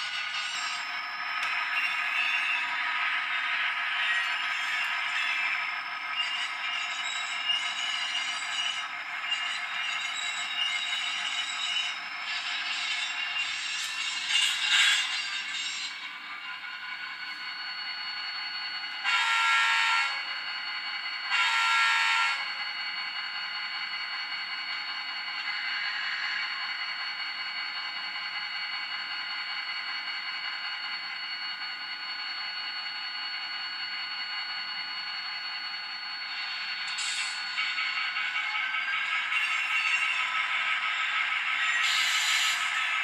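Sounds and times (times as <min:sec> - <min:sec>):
model locomotive horn blasts: 0:19.0 - 0:20.2, 0:21.3 - 0:22.4.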